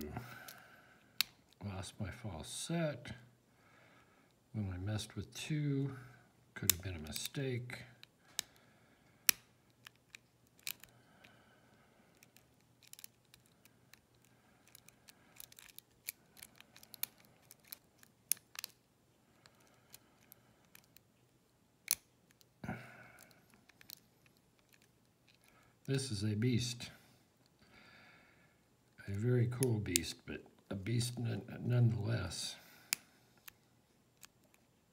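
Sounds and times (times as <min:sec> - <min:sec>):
faint steady hum: 0:00.0 - 0:34.9
lock pick metallic clicks: 0:09.3 - 0:10.9, 0:12.1 - 0:18.8, 0:21.8 - 0:22.5.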